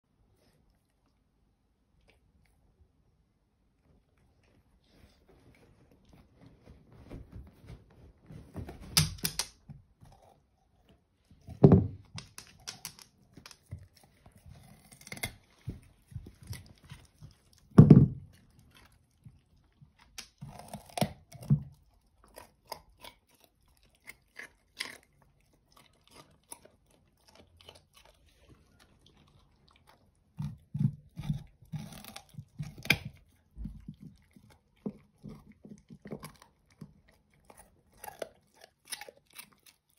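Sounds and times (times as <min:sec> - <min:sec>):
dog crunching a carrot: 0:08.8 - 0:39.9.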